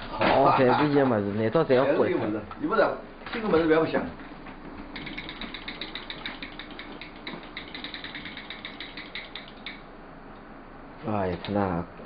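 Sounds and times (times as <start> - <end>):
faint steady hum: 0.0 - 12.0
rapid mechanical clicking: 4.9 - 9.9.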